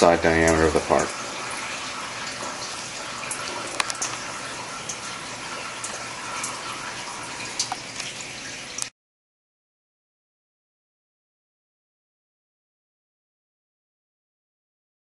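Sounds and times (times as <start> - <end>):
coolant spraying and splashing: 0.0 - 8.9.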